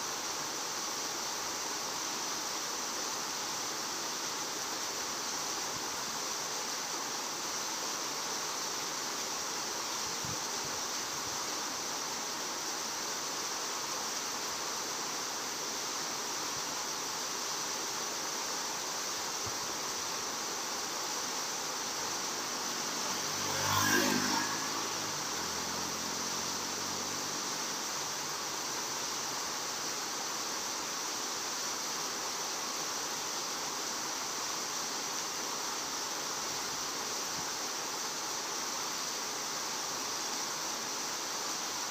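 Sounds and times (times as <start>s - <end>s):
steady rushing outdoor noise: 0.0s - 41.9s
motor vehicle passing: 21.9s - 28.5s.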